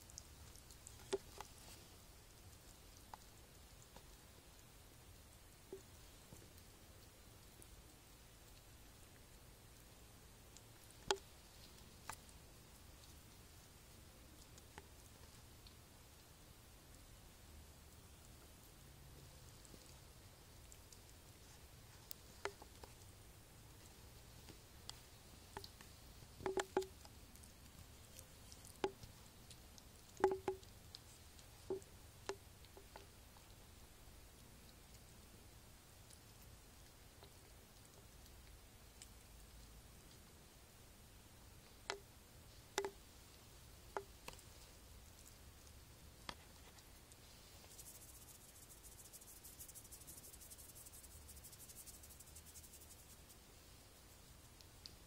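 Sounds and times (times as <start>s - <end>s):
faint rapid high-pitched ticking: 0.0s - 40.4s, 41.4s - 46.0s, 47.2s - 55.0s
kittens pawing light taps: 23.8s - 33.6s, 42.8s - 43.0s.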